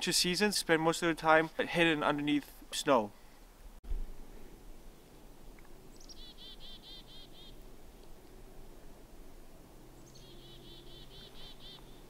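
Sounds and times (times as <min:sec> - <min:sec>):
chickadee calling: 0:05.9 - 0:07.6, 0:10.0 - 0:12.0.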